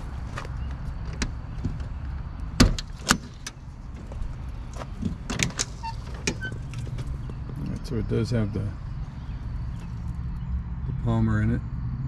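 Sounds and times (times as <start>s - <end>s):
steady low rumble: 0.0s - 12.0s
truck door latch clicks and knocks: 2.5s - 3.6s, 4.8s - 7.0s.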